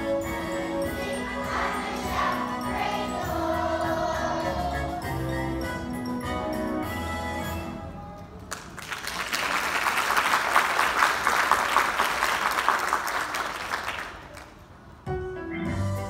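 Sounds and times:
music: 0.0s - 8.3s, 15.0s - 16.0s
audience applauding: 8.5s - 14.6s.

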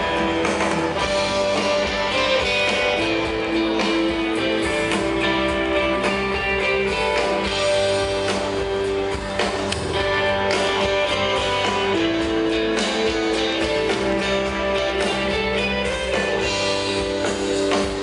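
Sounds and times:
guitar: 0.0s - 18.0s
live band music: 0.0s - 18.0s.

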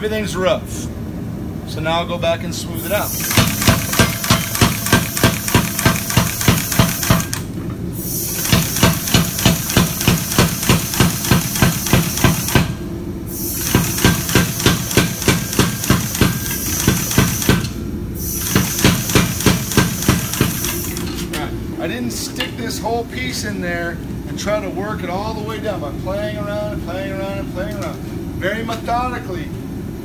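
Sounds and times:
hiss of air: 2.8s - 3.7s, 7.9s - 21.1s
power hammer striking hot steel: 3.2s - 7.4s, 8.4s - 12.8s, 13.6s - 17.8s, 18.4s - 21.0s.

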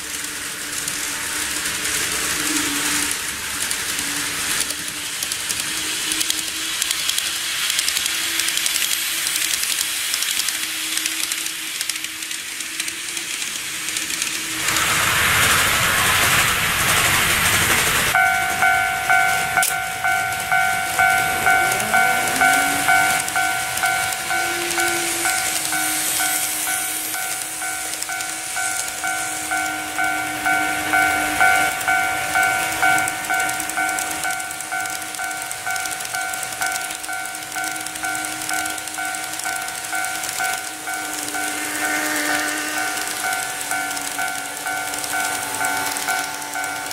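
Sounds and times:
model train wheels on track: 0.0s - 46.9s
level crossing bell clanging: 18.1s - 46.9s.

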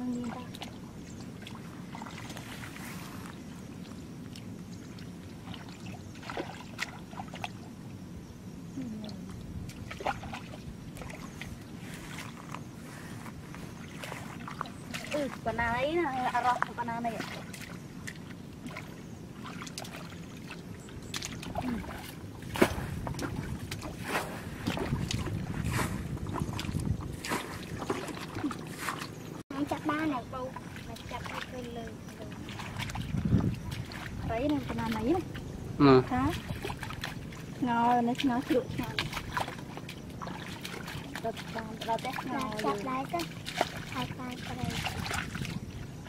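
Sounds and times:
hands sloshing in muddy water: 0.0s - 7.7s, 9.6s - 46.0s
water splashes: 0.0s - 8.0s, 8.8s - 46.0s
steady low rumble: 17.8s - 41.8s.

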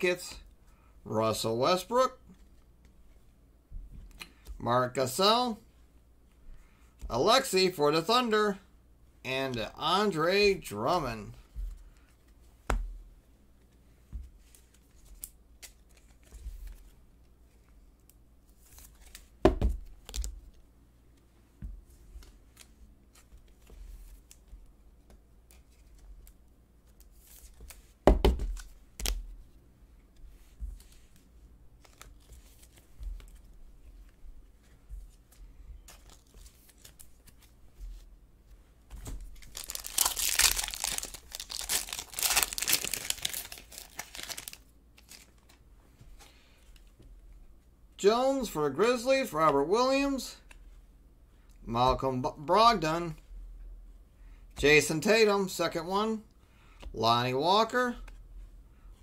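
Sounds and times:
cards in plastic sleeves handled: 13.6s - 21.3s, 22.0s - 29.5s, 30.1s - 38.0s, 38.9s - 45.6s
foil wrapper crinkling torn open: 39.4s - 45.3s.

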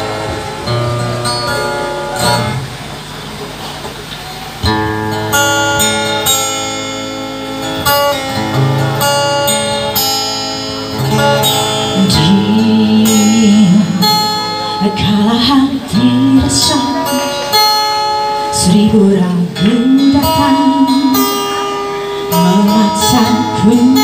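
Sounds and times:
acoustic guitar strumming: 0.0s - 24.0s
woman singing: 12.0s - 14.2s, 14.8s - 17.5s, 18.5s - 21.6s, 22.3s - 24.0s.

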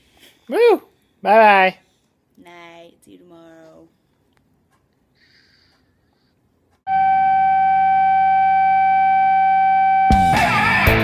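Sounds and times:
steady electronic tone: 6.9s - 10.4s
strummed guitar music: 10.1s - 11.0s.

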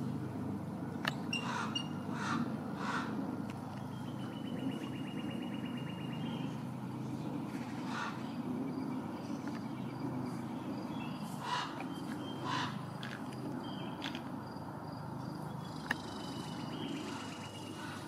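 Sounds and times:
bird trilling: 1.1s - 3.2s, 11.0s - 12.9s
harsh bird calls: 1.2s - 14.1s, 15.4s - 18.0s.

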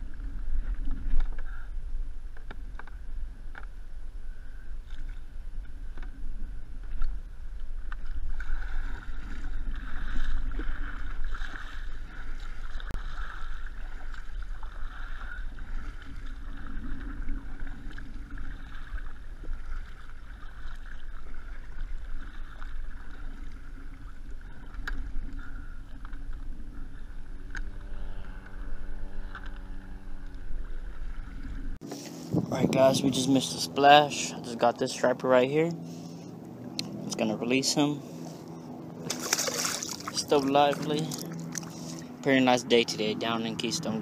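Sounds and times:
low wind rumble on microphone: 0.0s - 34.9s
paddle strokes: 0.0s - 42.4s
steady pitched hum: 0.0s - 44.0s
water splashing along a hull: 0.0s - 44.0s.

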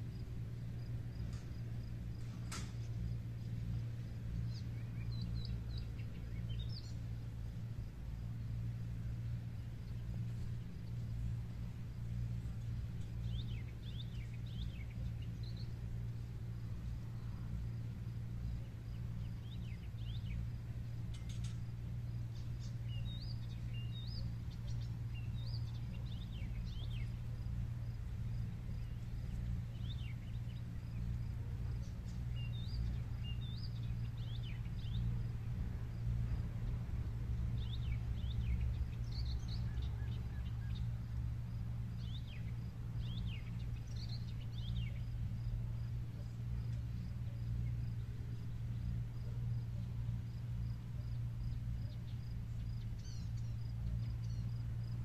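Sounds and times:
low steady hum: 0.0s - 55.0s
birds chirping: 12.4s - 16.1s, 42.0s - 45.5s, 51.4s - 54.6s.

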